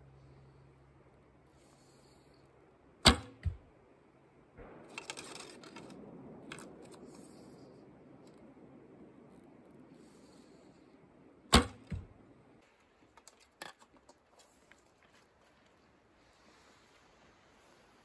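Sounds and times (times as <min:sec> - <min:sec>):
arrow striking target: 0:03.0 - 0:03.7, 0:11.5 - 0:12.1
arrow rustling and clicking: 0:04.6 - 0:08.5.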